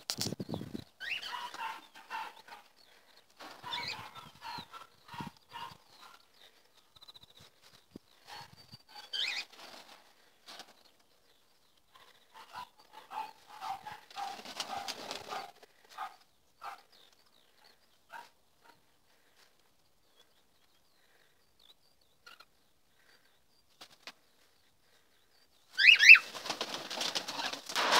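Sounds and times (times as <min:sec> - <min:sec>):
shrill chirps: 0:25.7 - 0:26.3
parrots calling: 0:25.8 - 0:26.2.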